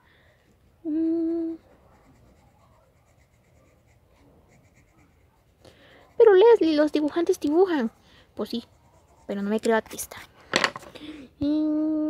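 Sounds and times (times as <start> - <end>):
person humming a note: 0.8 - 1.6
pencil scratching on paper: 1.5 - 10.3.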